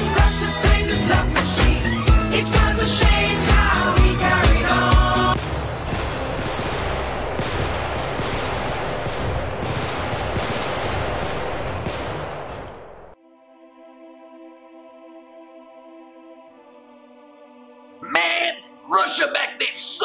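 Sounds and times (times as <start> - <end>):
upbeat music: 0.0 - 5.4, 18.0 - 20.0
rapid gunfire: 5.4 - 13.2.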